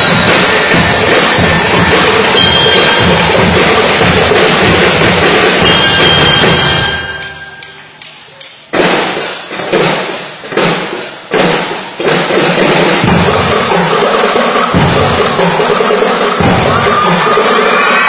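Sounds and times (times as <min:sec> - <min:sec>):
drums and bell lyres playing: 0:00.0 - 0:18.0
heavy accented drum hits: 0:08.8 - 0:14.0.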